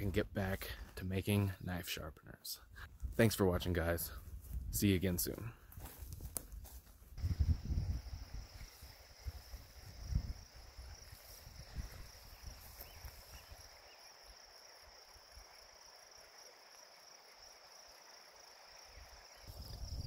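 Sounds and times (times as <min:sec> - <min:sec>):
footsteps through grass: 0:04.1 - 0:13.8
insects chirring: 0:07.2 - 0:20.0.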